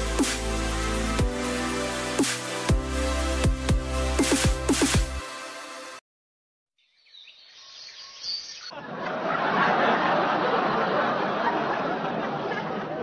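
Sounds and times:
faint bird chirps: 6.8s - 8.8s.

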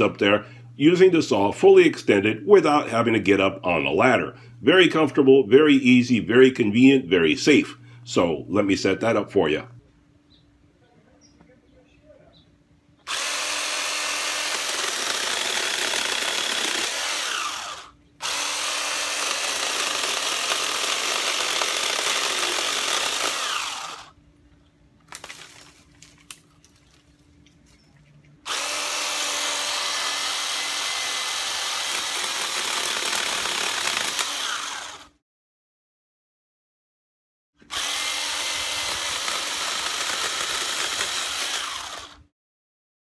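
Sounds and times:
electric chainsaw cutting branches: 13.0s - 24.2s, 28.4s - 35.2s, 37.6s - 42.3s.

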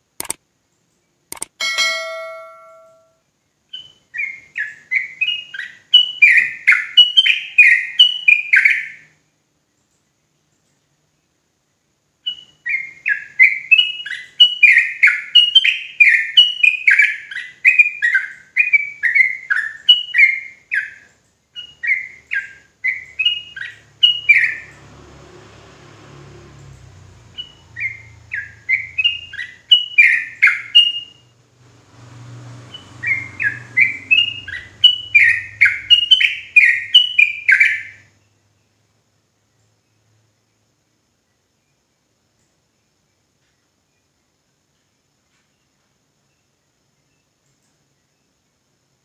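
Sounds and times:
bird fast chattering song: 32.7s - 38.1s.

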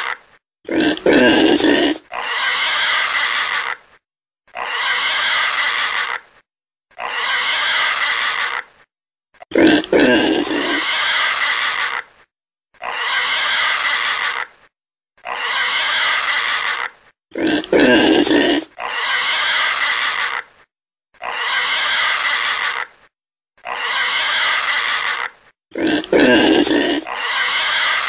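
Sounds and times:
pig grunting: 0.0s - 3.8s, 9.4s - 11.2s, 15.2s - 20.4s, 23.6s - 28.0s.

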